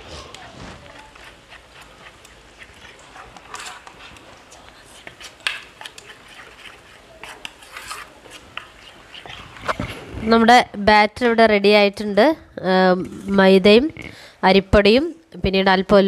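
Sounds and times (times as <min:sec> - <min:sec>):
batter squelching and slapping: 0:00.0 - 0:10.4.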